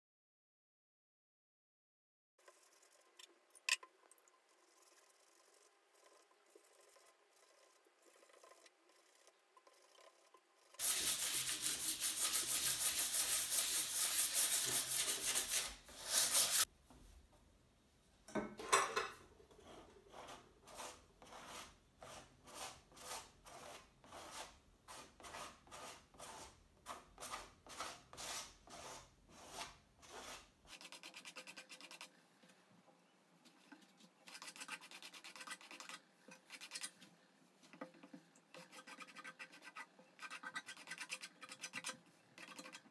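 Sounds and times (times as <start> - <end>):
light scrubbing strokes: 4.5 - 16.7, 33.4 - 42.9
palette knife scraping canvas: 10.8 - 16.7, 19.6 - 32.1, 38.5 - 42.9
sandpaper rubbing on canvas: 10.8 - 16.7, 20.1 - 32.1.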